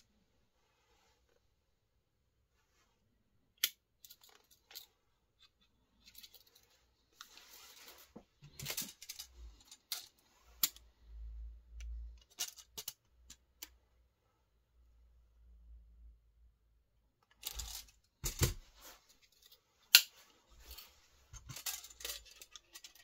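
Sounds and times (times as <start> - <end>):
scraping rustle: 6.1 - 10.7.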